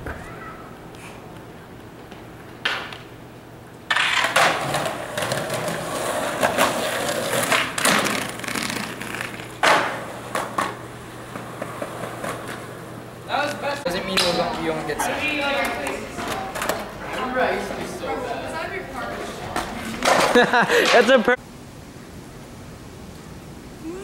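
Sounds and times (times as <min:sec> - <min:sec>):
skateboard wheels rolling on concrete: 0:00.0 - 0:21.4
skateboard clacking on ground: 0:03.8 - 0:12.7, 0:13.4 - 0:14.7, 0:15.5 - 0:17.3, 0:19.6 - 0:21.1.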